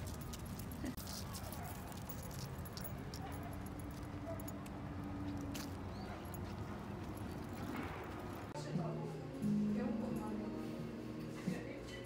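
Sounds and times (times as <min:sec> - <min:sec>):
leash clip and tags jingling: 0:00.0 - 0:08.5.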